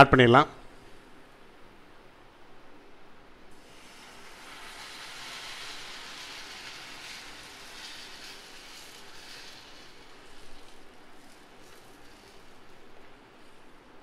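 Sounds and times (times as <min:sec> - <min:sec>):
liquid sizzling in hot oil: 0:03.5 - 0:14.0.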